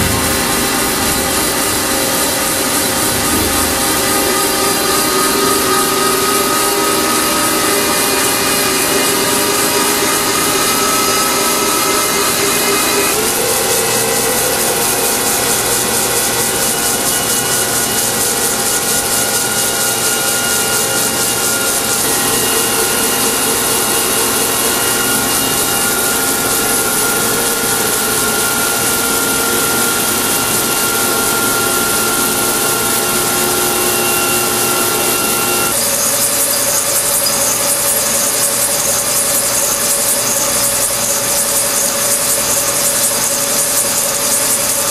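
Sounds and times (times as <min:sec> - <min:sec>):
spindle whining tones: 0:00.0 - 0:44.8
metal machining scraping: 0:00.0 - 0:44.9.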